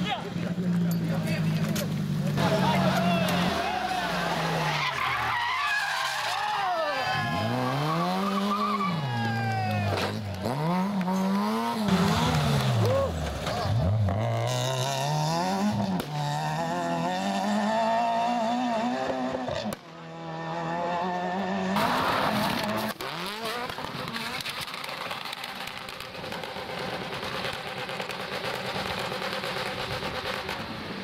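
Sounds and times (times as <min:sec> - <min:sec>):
rally car engines revving: 0:00.0 - 0:31.0
tyres on gravel: 0:21.8 - 0:30.9.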